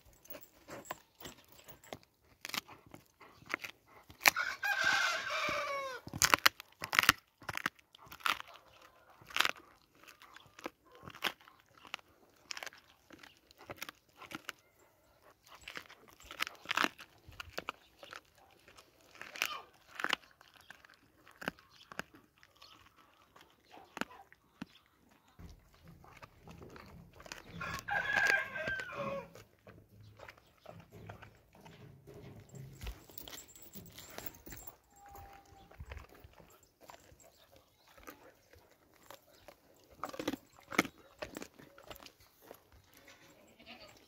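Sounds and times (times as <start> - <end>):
dog crunching on bone: 0.0 - 43.4
rooster crowing: 4.4 - 6.0, 27.6 - 29.3.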